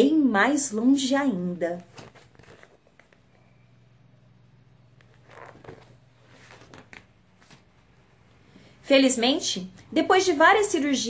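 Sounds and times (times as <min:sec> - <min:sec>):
low steady hum: 0:00.0 - 0:11.0
paper rustling: 0:01.8 - 0:03.4, 0:05.0 - 0:07.8.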